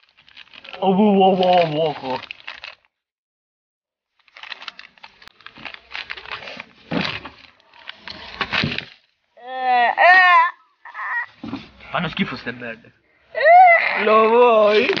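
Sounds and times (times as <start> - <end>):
plastic bag crinkling: 0.0 - 2.9, 4.1 - 9.1, 14.6 - 15.0
person crying out: 9.4 - 11.4, 13.4 - 14.9.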